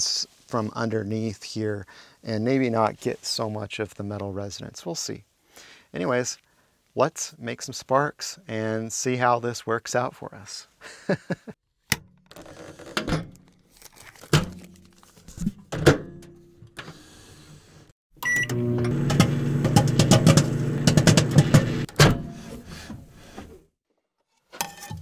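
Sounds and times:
microwave keypad beeps: 0:18.2 - 0:18.6
microwave humming: 0:18.2 - 0:22.0.

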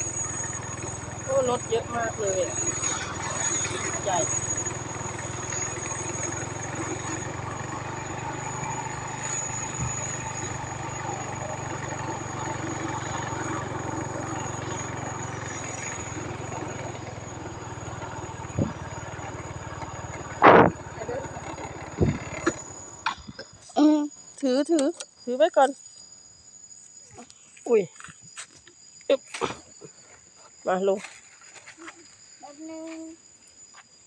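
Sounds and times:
small motorcycle engine running: 0:00.0 - 0:23.7
loud thump: 0:20.4 - 0:20.8.

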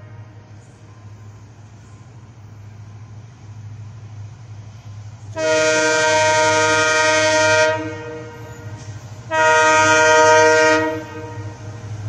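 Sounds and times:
locomotive horn blasts: 0:05.4 - 0:11.8.

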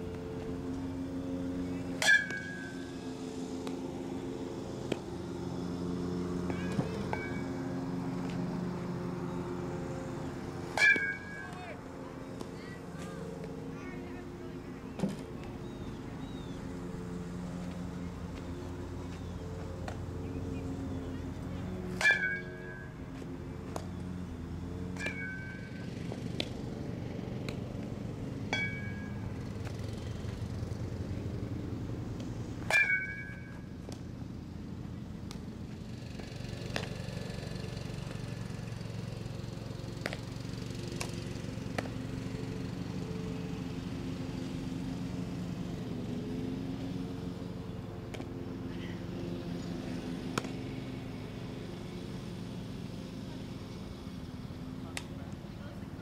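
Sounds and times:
bat hitting softball ping: 0:02.0 - 0:02.9, 0:06.4 - 0:07.6, 0:10.7 - 0:11.7, 0:21.9 - 0:23.0, 0:25.0 - 0:26.6, 0:28.4 - 0:29.2, 0:32.6 - 0:34.0, 0:50.3 - 0:50.6.

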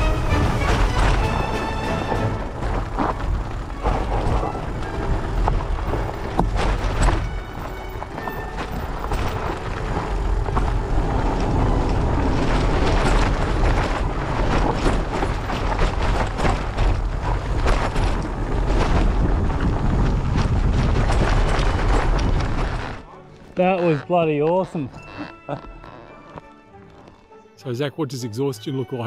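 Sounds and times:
wind buffeting microphone: 0:00.0 - 0:23.0
bike rattling on rough trail: 0:00.0 - 0:27.3.

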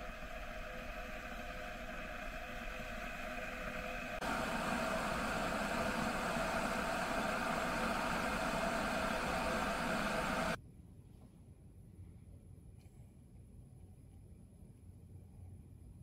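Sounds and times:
electric kettle heating water: 0:00.0 - 0:10.6.

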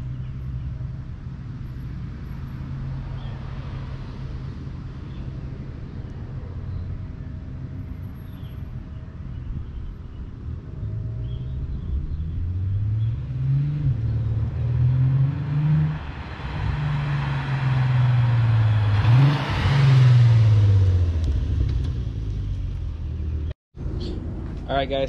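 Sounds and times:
car engine revving and passing: 0:10.7 - 0:23.4.

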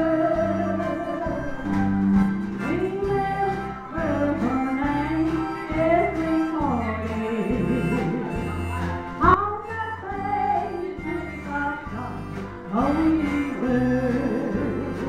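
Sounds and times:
elderly woman singing with vibrato: 0:00.0 - 0:01.7, 0:02.6 - 0:08.2, 0:09.2 - 0:15.0
electric guitars: 0:00.0 - 0:15.0
steady bass notes: 0:00.0 - 0:15.0.

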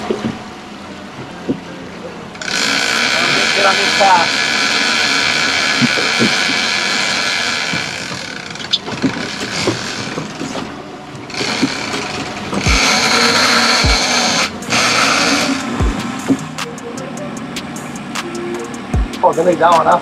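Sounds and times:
boat engine: 0:00.0 - 0:20.0
knocks and low thumps: 0:12.6 - 0:12.9, 0:15.8 - 0:16.6.

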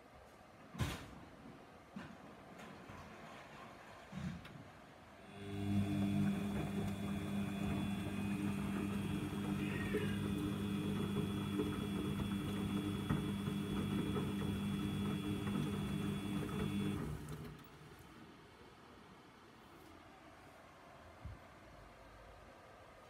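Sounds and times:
washing machine motor humming: 0:05.2 - 0:17.9.

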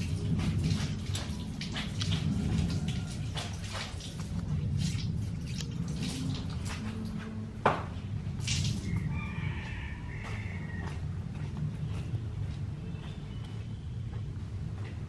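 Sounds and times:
water dripping and pattering: 0:00.0 - 0:09.4.

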